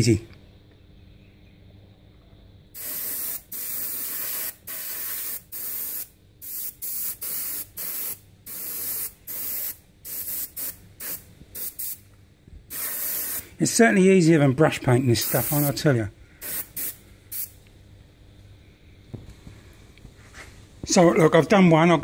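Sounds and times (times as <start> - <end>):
airbrush spraying hiss bursts: 2.8 - 12.0, 12.7 - 13.6, 15.2 - 15.8, 16.4 - 17.6.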